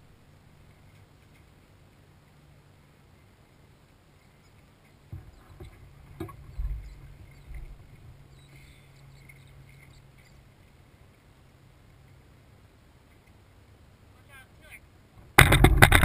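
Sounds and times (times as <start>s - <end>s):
faint low hum: 0.0s - 16.0s
low rumble on microphone: 5.1s - 10.4s
sharp knocks on kayak: 15.3s - 16.0s.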